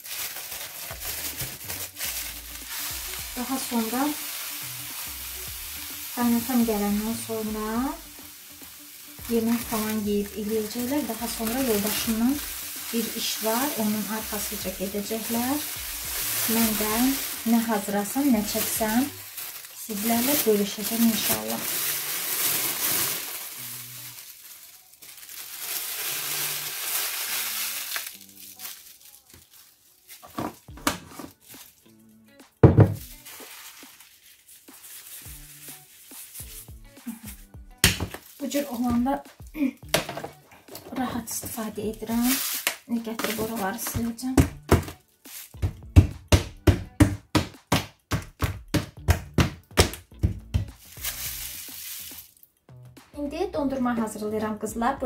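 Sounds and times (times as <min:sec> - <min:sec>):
sugar pouring into a tub: 0:00.0 - 0:30.4, 0:32.9 - 0:37.2, 0:42.0 - 0:43.9, 0:50.7 - 0:52.4
plastic bag crinkling: 0:00.0 - 0:31.9, 0:33.0 - 0:37.2, 0:38.0 - 0:39.0, 0:40.7 - 0:44.2, 0:45.1 - 0:45.7, 0:50.8 - 0:52.5
hand patting plastic tub lid: 0:45.6 - 0:50.9.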